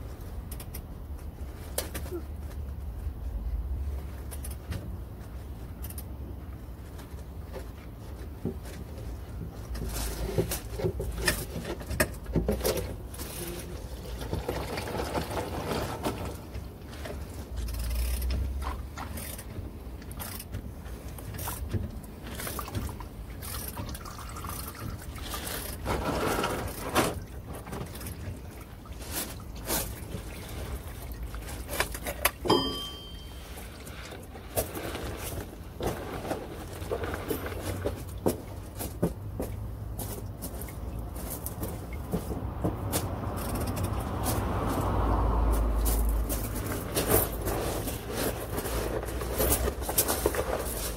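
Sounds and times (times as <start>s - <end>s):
oil pouring into plastic jug: 13.8s - 16.3s
sharp metal clink: 32.5s - 33.4s.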